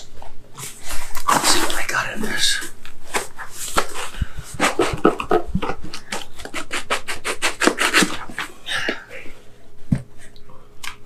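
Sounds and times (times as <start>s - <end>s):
cardboard rubbing and scraping: 3.1s - 8.5s.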